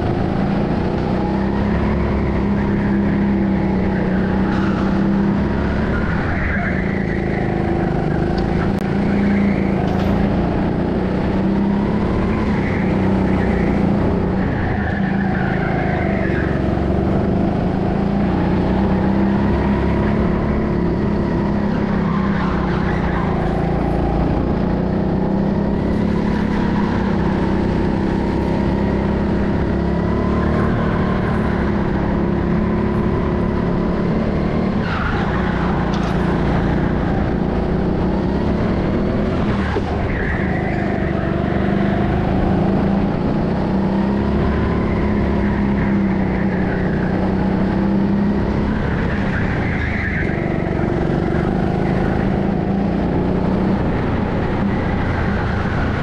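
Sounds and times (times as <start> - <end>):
go-kart motor drone: 0.0 - 56.0
tyre squeals: 34.6 - 37.4, 39.5 - 42.8, 44.8 - 52.7.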